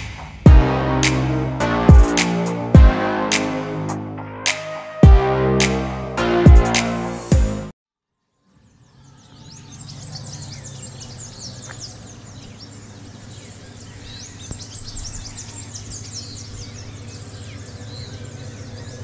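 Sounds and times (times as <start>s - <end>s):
birds chirping: 8.4s - 19.0s.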